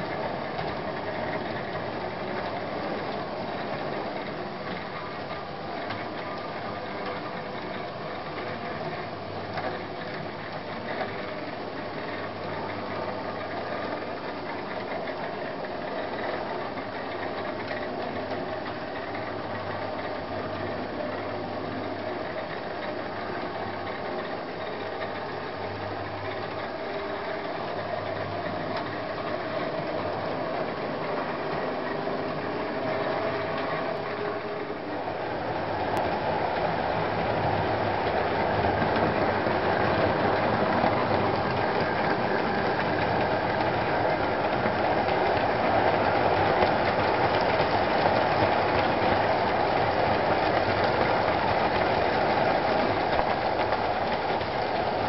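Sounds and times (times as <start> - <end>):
wheels rattling on rails: 0.0 - 55.0
model train motor whir: 35.4 - 55.0.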